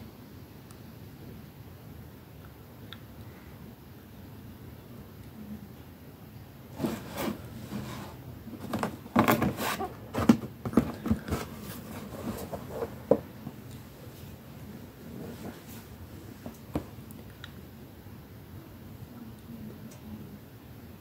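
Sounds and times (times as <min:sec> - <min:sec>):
cardboard box being handled: 0:06.7 - 0:13.4.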